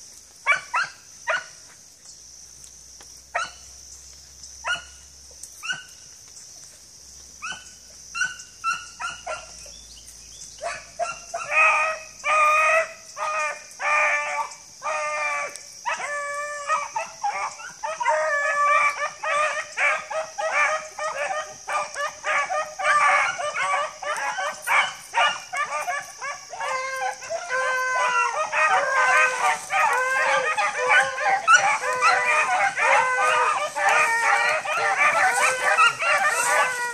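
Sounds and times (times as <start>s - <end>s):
hounds baying: 10.6s - 36.9s.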